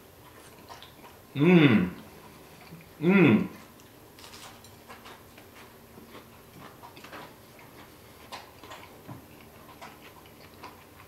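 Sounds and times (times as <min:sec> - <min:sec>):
low steady hum: 0:00.0 - 0:11.0
chewing mouth clicks and smacks: 0:00.2 - 0:01.2, 0:03.6 - 0:11.0.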